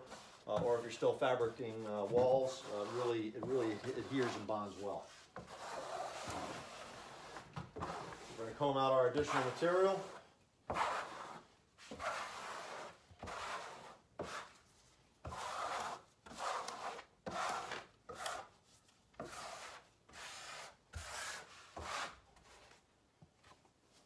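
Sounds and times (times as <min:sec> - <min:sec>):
steel trowel scraping membrane: 0:00.0 - 0:14.6, 0:15.3 - 0:18.5.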